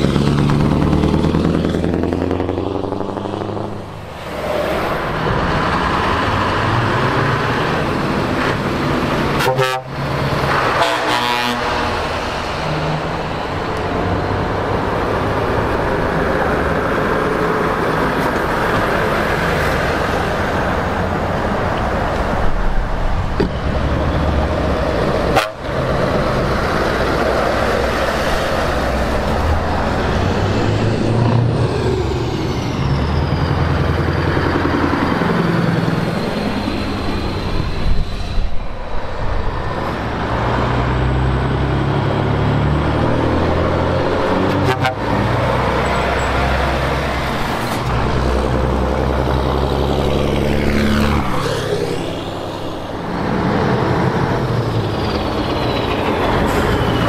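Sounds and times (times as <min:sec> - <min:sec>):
heavy trucks driving past: 0:00.0 - 0:57.0
truck horns: 0:09.1 - 0:13.0, 0:25.1 - 0:26.1, 0:44.1 - 0:46.7.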